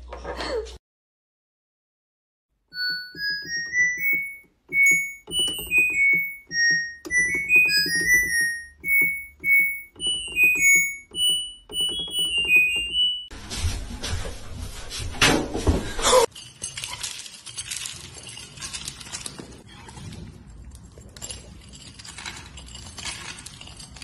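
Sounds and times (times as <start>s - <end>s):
keyboard melody over a beat: 2.8s - 13.3s.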